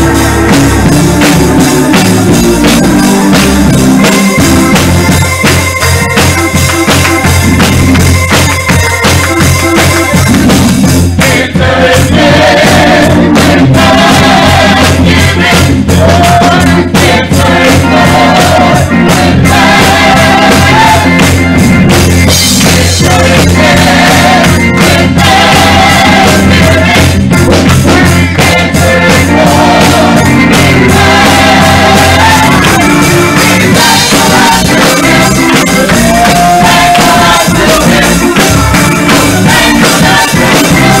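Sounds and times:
bass: 0:00.0 - 0:41.0
choir singing gospel: 0:00.0 - 0:41.0
drums: 0:00.0 - 0:41.0.

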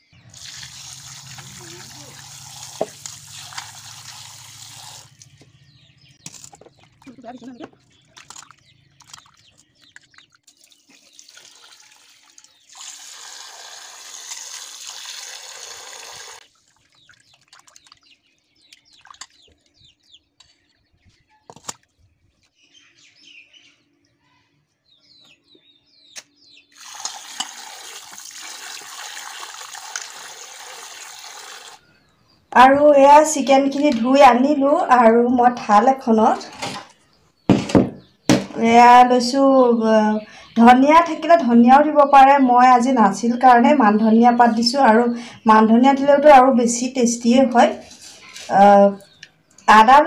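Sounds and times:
water splashing and sloshing: 0:00.2 - 0:05.4, 0:06.2 - 0:13.3, 0:16.4 - 0:19.8
tap water running into steel bowl: 0:00.3 - 0:05.2, 0:10.5 - 0:16.4, 0:26.8 - 0:31.8.

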